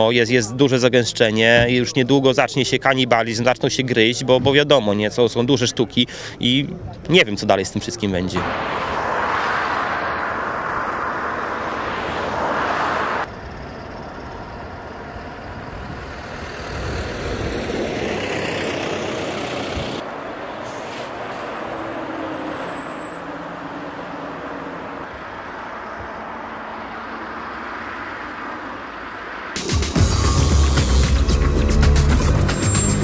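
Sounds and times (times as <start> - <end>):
road traffic of lorries and cars: 0.0 - 33.0
tractor engines running: 13.2 - 22.8, 30.1 - 33.0.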